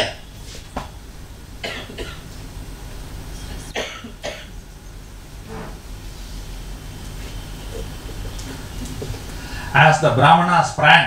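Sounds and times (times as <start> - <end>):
faint low hum: 0.0 - 11.0
man coughing: 3.8 - 4.5.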